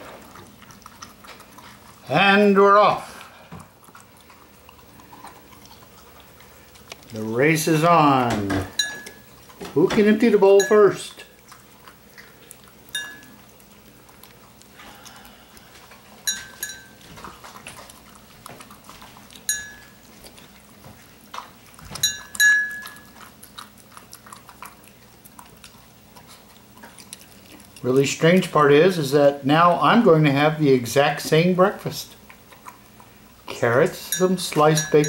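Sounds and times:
dogs licking and chewing: 0.0s - 35.0s
collar tag clinking on bowl: 8.7s - 9.3s, 10.5s - 11.1s, 12.9s - 13.4s, 16.2s - 17.0s, 19.5s - 20.0s, 22.0s - 23.2s, 34.0s - 35.0s.

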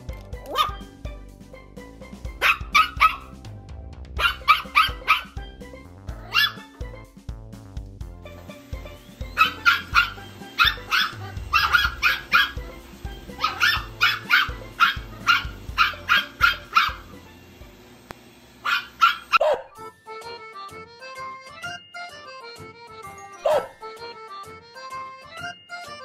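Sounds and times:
small dog yapping: 0.5s - 0.9s, 2.4s - 3.3s, 4.2s - 5.4s, 6.2s - 6.6s, 9.4s - 12.6s, 13.4s - 17.0s, 18.6s - 19.8s, 23.4s - 23.8s.

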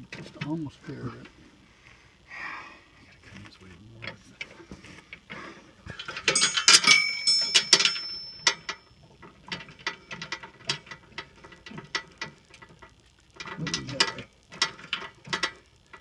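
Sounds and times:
metal parts clanking: 5.2s - 16.0s
sharp metal clicks: 6.0s - 16.0s.

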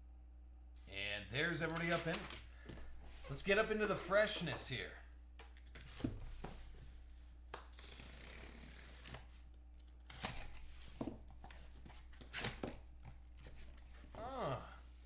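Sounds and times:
packing tape tearing: 7.6s - 10.7s.

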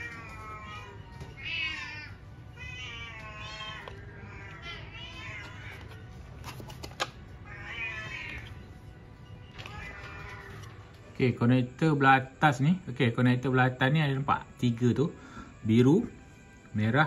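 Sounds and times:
cat meowing: 0.0s - 6.1s, 7.4s - 8.7s, 9.4s - 10.9s.

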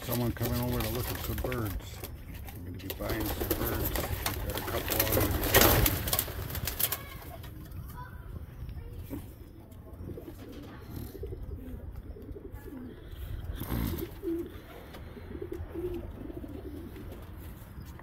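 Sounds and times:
flurry of wingbeats: 0.0s - 8.0s
pigeons cooing: 0.0s - 18.0s.

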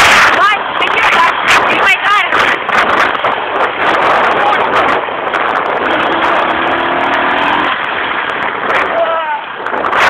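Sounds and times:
loud rough rushing noise: 0.0s - 10.0s
atv engine running: 2.5s - 8.9s.

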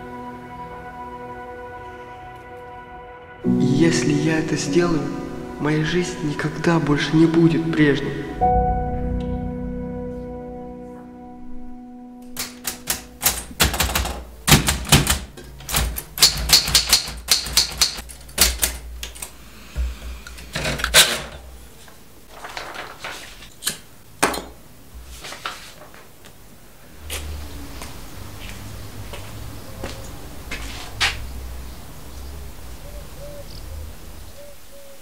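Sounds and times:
typewriter keys clacking: 12.4s - 19.3s.

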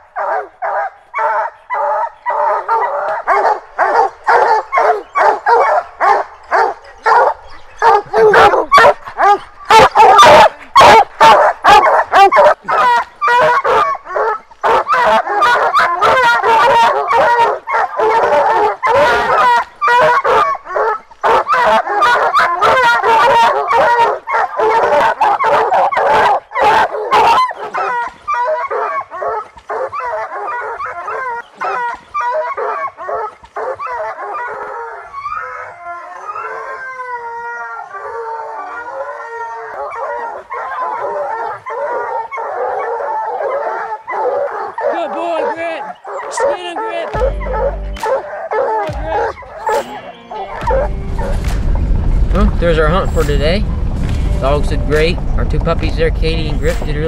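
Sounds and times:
hounds baying: 0.0s - 55.2s
hounds howling: 0.0s - 57.0s.

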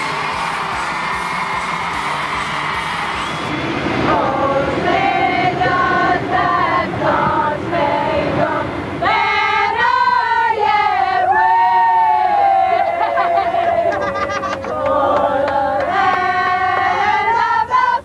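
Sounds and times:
women singing together: 4.0s - 18.0s.

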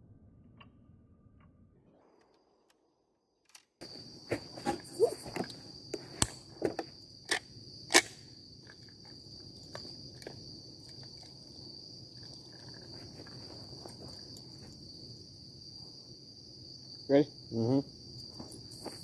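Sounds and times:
crickets chirring: 3.8s - 19.0s.

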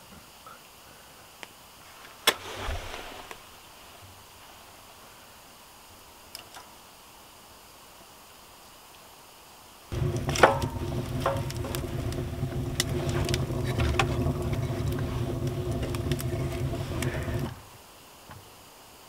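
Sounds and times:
wood crackling and snapping: 9.9s - 17.7s
stove draft rumble: 9.9s - 17.8s.

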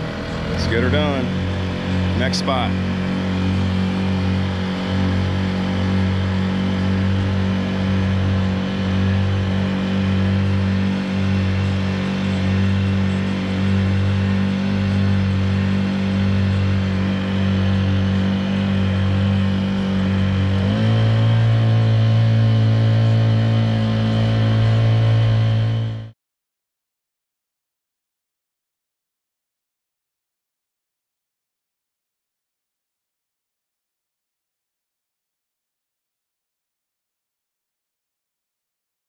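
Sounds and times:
outboard engine running: 0.0s - 26.2s.

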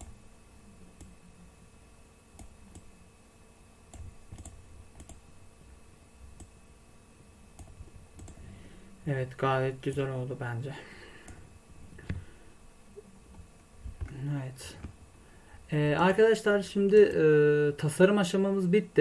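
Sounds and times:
faint steady hum: 0.0s - 19.0s
computer mouse clicks: 2.4s - 2.9s, 3.9s - 5.2s, 7.6s - 8.4s.

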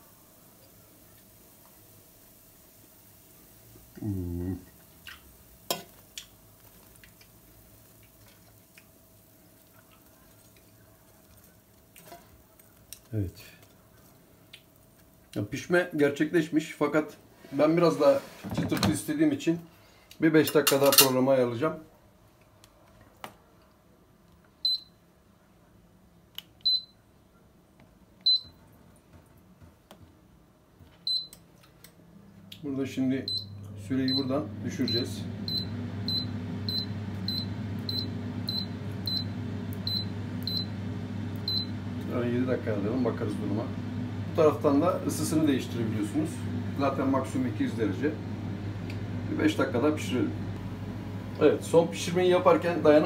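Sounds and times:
person humming: 3.9s - 4.7s
air fryer short high beeps: 26.7s - 27.0s, 28.3s - 28.5s, 31.1s - 31.4s, 33.3s - 40.8s, 41.4s - 41.8s.

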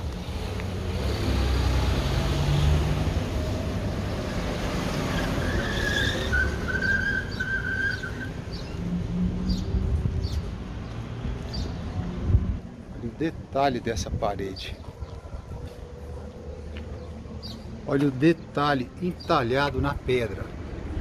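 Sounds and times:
traffic engine and tyre rumble: 0.0s - 21.0s.

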